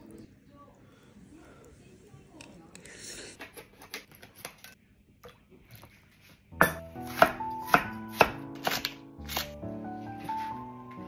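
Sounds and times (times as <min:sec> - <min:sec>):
background music: 0:06.5 - 0:11.0
knife chopping on cutting board: 0:06.6 - 0:09.6.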